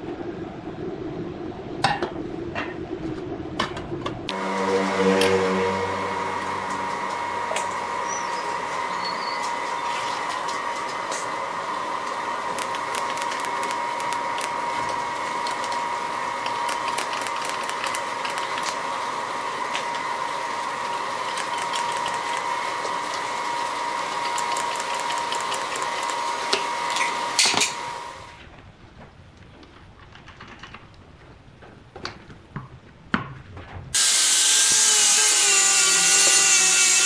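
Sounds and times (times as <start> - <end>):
welding arc whine and crackle: 4.2 - 29.8, 33.9 - 37.0
sharp clicks: 12.5 - 14.6, 16.4 - 18.8.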